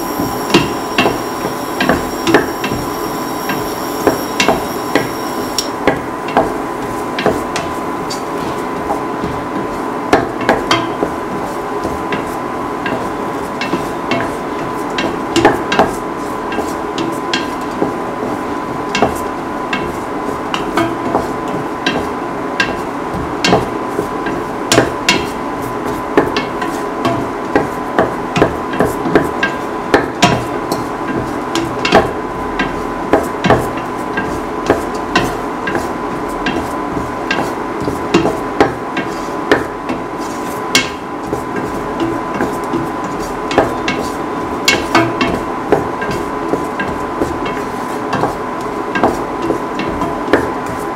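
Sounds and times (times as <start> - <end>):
steady high hum: 0.0 - 7.2.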